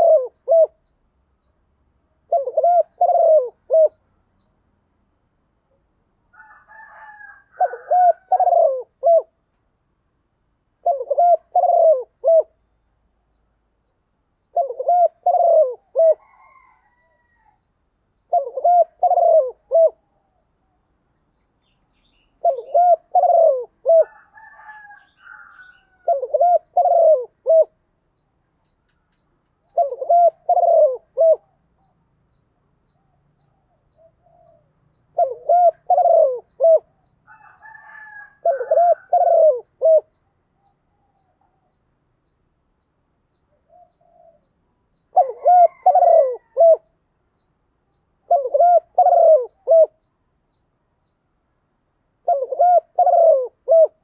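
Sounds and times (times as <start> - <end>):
dove cooing: 0.0 - 0.9, 2.2 - 4.0, 6.4 - 9.4, 10.8 - 12.6, 14.4 - 17.6, 18.2 - 20.5, 22.4 - 27.8, 29.6 - 31.9, 32.9 - 41.8, 43.5 - 46.9, 48.2 - 50.1, 52.2 - 54.0.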